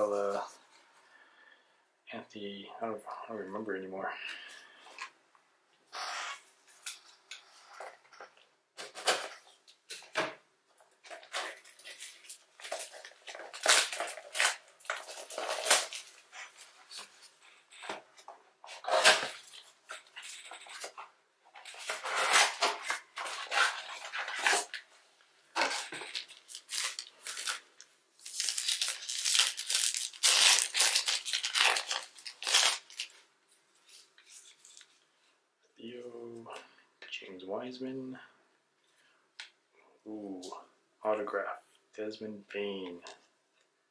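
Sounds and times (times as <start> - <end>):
card pack wrappers tearing and crinkling: 11.1 - 17.1, 18.8 - 21.0, 21.7 - 24.8, 25.6 - 33.2.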